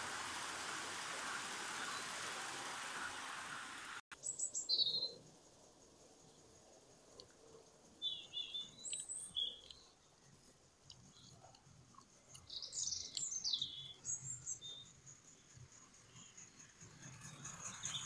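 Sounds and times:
birds chirping: 1.0 - 5.2, 8.0 - 10.3, 12.2 - 15.6.

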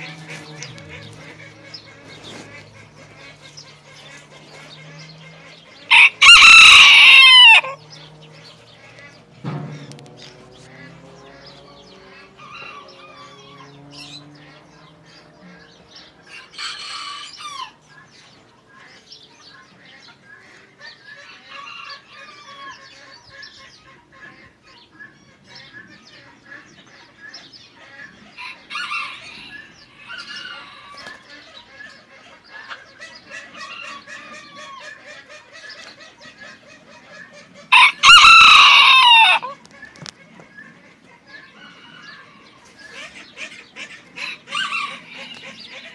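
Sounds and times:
rooster clucking: 0.0 - 24.5, 25.4 - 45.9
rooster crowing loudly: 5.9 - 7.8, 16.4 - 17.8, 28.4 - 30.7, 37.7 - 39.6, 44.2 - 45.4.

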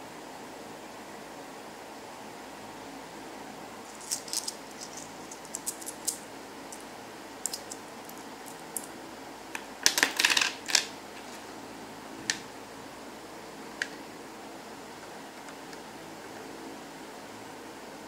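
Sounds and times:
steady hiss: 0.0 - 18.0
coins clinking: 3.9 - 6.8, 7.4 - 8.9.

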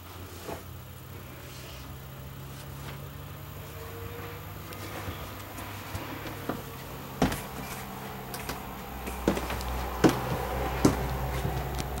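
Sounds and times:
low steady hum: 0.0 - 12.0
footsteps thudding on floor: 5.0 - 12.0.

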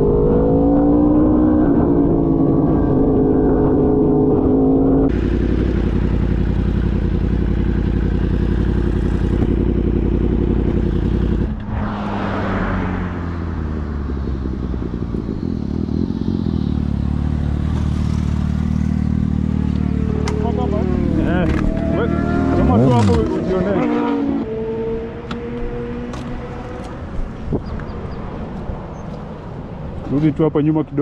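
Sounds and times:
motorcycle engine running: 5.1 - 11.6, 13.0 - 24.2
wind rush: 11.4 - 15.2.

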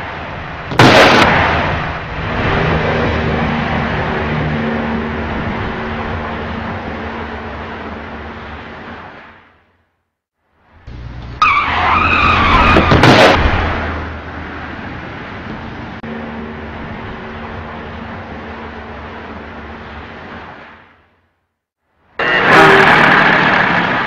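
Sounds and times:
rumbling noise: 0.0 - 9.6, 10.6 - 21.2
loud crash impact: 0.7 - 2.8, 11.6 - 14.2
car tyres screeching: 10.9 - 16.4, 22.2 - 24.0.

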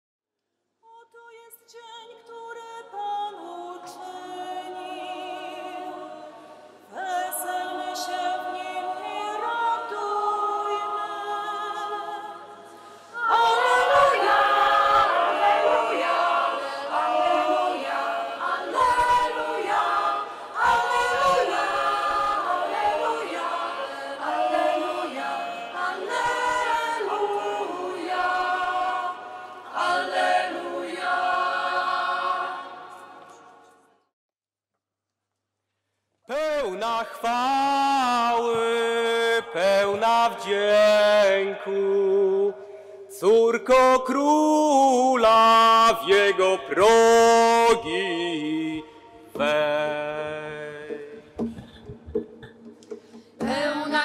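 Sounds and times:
choir singing a hymn: 2.9 - 33.6, 44.7 - 51.4.

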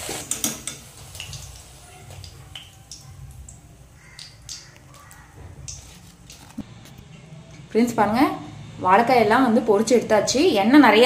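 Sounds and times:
hot oil crackling and popping: 0.0 - 7.0.

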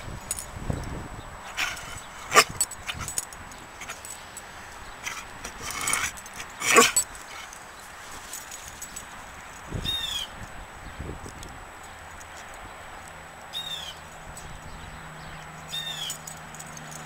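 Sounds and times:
dog barking: 1.6 - 3.1, 6.6 - 7.0.

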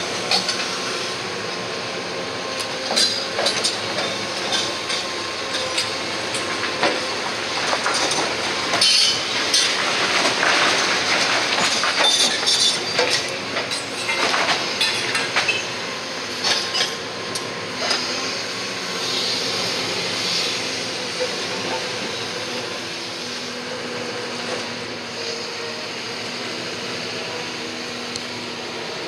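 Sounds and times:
excavator engine running: 0.0 - 29.0
masonry crashing and cracking: 6.4 - 15.6.

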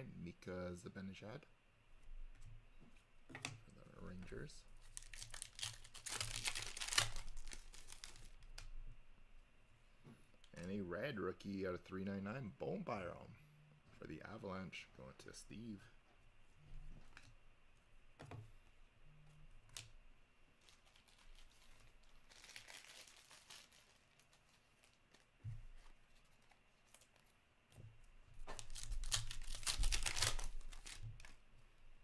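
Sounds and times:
foil wrapper tearing and crinkling: 4.8 - 8.6, 20.6 - 25.3, 28.6 - 31.4.

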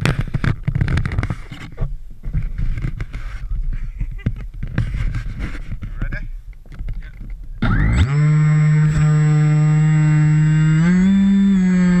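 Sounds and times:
handling knocks and scrapes: 0.0 - 7.4.

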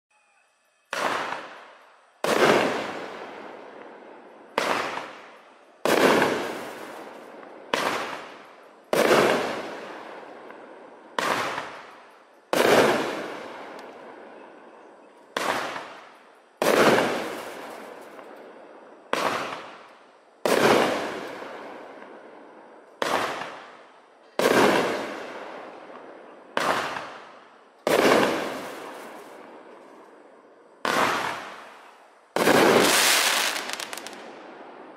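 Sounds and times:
firework launch bangs: 0.9 - 3.1, 4.5 - 5.3, 30.8 - 31.8, 32.4 - 34.4
firework aerial bursts: 0.9 - 3.8, 4.5 - 10.4, 15.4 - 18.2, 19.1 - 21.9, 26.6 - 30.1, 30.8 - 34.5.

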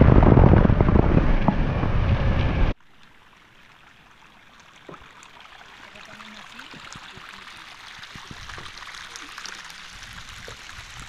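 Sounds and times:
water trickling: 2.8 - 11.0.

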